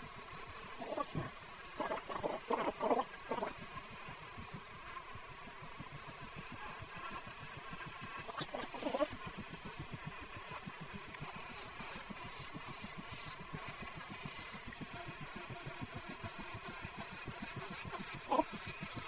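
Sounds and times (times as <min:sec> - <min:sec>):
hiss of wood being turned: 0:10.9 - 0:19.0.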